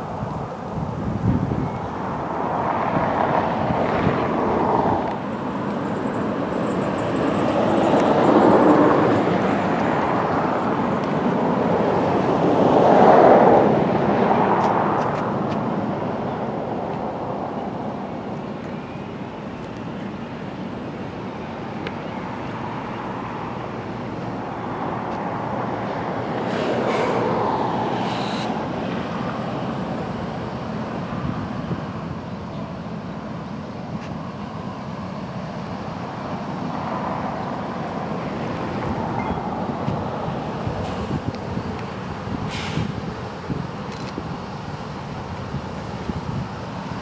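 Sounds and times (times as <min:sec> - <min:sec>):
diesel locomotive engine rumble: 0:00.0 - 0:47.0.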